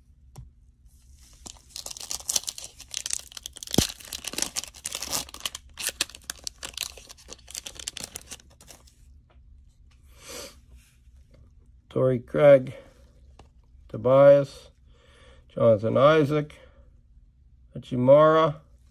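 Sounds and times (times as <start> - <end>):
cellophane wrapper crinkling: 1.2 - 8.9.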